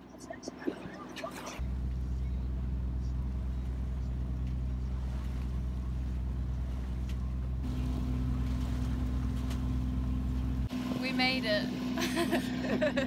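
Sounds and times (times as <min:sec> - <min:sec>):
boat engine droning: 0:00.4 - 0:13.0.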